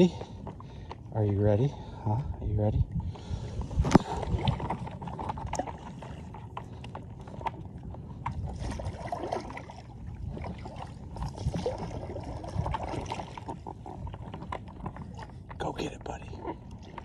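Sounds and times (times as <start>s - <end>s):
water splashing and lapping: 0.0s - 17.0s.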